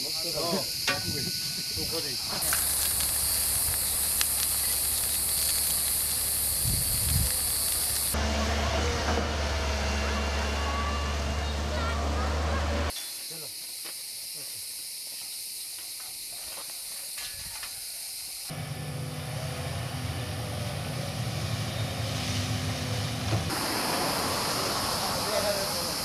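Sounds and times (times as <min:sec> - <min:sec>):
steady hiss: 0:00.0 - 0:08.2, 0:23.5 - 0:26.0
excavator diesel engine running: 0:02.4 - 0:12.9, 0:18.5 - 0:26.0.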